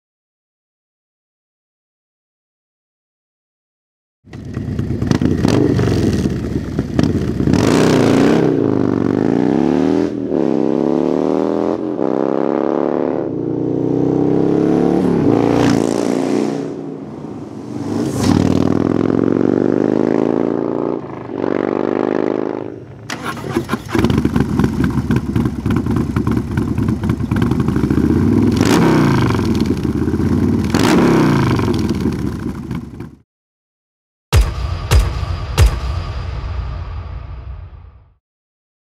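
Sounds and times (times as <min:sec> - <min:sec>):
motorcycle accelerating through gears: 0:04.3 - 0:33.2
motorcycle engine revving: 0:04.3 - 0:33.2.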